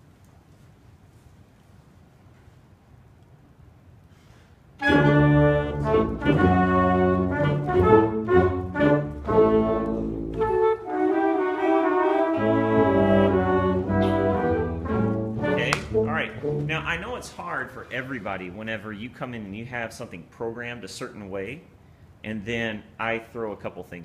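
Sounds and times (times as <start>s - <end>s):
wind ensemble playing chords: 4.8s - 17.4s.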